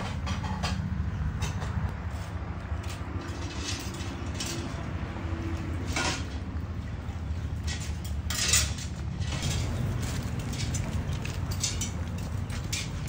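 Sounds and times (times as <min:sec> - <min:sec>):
fire crackling: 0:04.2 - 0:13.0.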